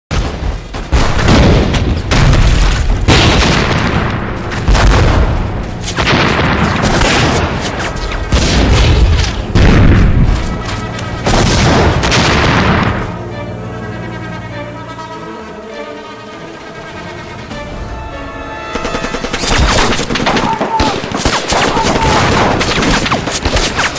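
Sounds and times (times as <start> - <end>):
gunfire: 0.1 - 10.5, 11.2 - 13.1, 18.7 - 23.9
explosions with deep rumble: 0.1 - 13.2
orchestral string music: 3.5 - 21.6.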